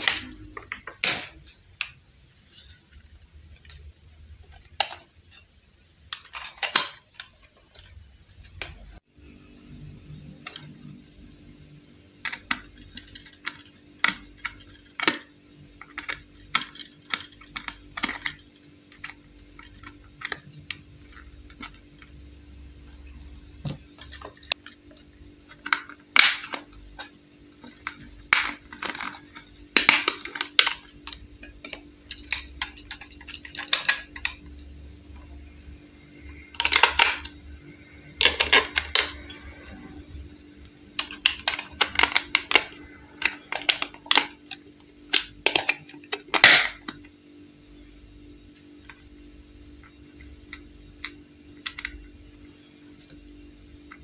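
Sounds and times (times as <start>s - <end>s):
faint steady hum: 0.0s - 54.0s
plastic toy clicks and rattles: 6.1s - 8.8s, 12.2s - 22.1s, 22.8s - 35.3s, 36.5s - 37.4s, 38.1s - 40.4s, 41.0s - 47.0s.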